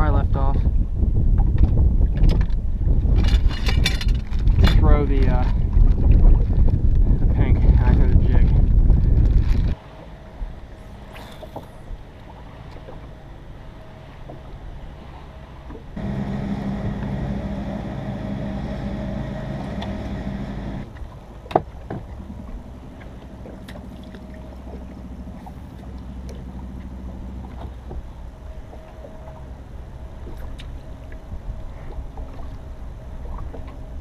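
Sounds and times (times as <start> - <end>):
electric trolling motor humming: 15.9 - 21.2, 22.0 - 34.0
tackle clicking on boat deck: 16.0 - 22.2.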